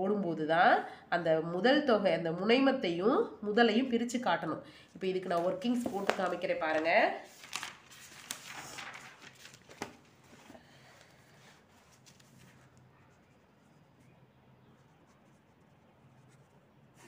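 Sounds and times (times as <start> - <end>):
paper rustling: 5.2 - 14.1.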